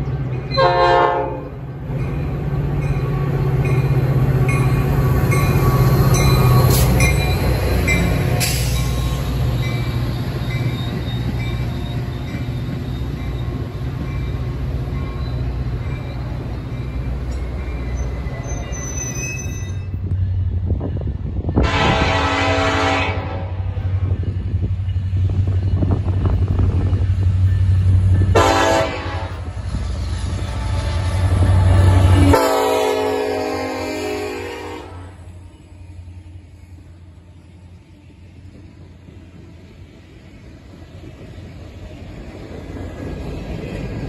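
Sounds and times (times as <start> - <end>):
train rumbling past: 0.0 - 44.0
train horn blast: 0.5 - 1.5, 21.6 - 23.8, 28.3 - 29.6, 31.0 - 35.2.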